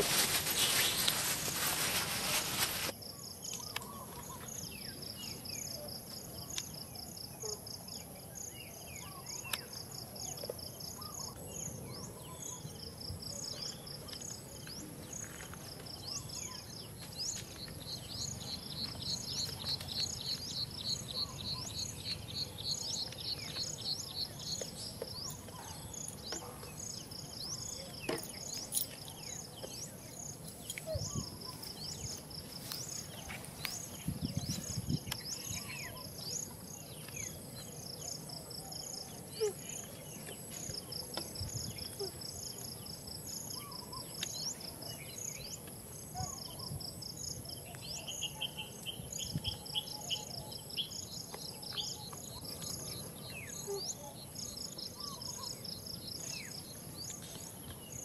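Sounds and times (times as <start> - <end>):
loud even hiss: 0.0 - 2.9
insects chirping: 0.0 - 58.0.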